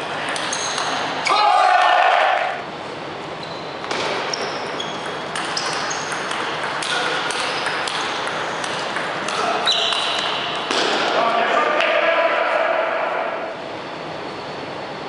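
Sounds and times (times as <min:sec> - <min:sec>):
table tennis ball pings: 0:03.8 - 0:10.8.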